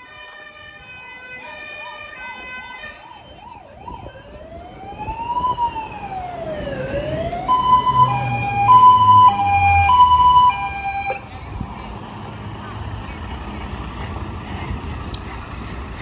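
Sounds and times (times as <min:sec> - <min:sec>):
fire engine siren: 0:00.0 - 0:11.3
truck engine rumbling: 0:03.1 - 0:16.0.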